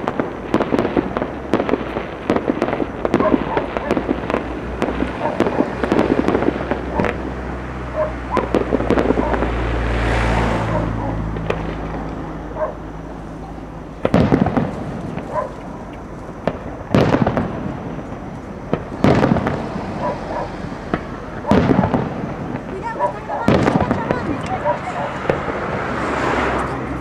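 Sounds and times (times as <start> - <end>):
fireworks bangs and pops: 0.0 - 27.0
fireworks rushing hiss: 0.0 - 27.0
loud firework bursts: 0.0 - 27.0.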